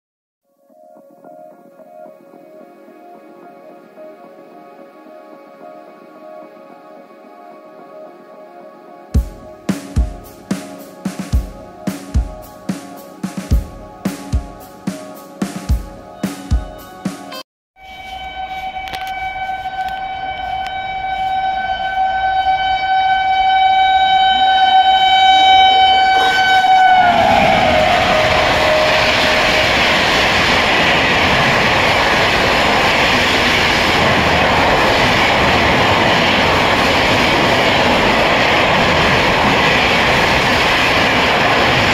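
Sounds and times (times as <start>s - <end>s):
train horn long note: 16.0s - 32.9s
train wheels on rail: 26.2s - 41.9s.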